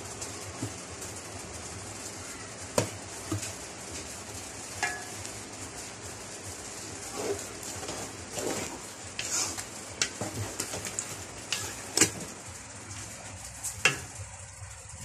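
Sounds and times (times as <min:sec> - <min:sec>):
spoon knocking against pot: 0:04.8 - 0:05.2
spoon stirring thick sauce: 0:07.1 - 0:12.3.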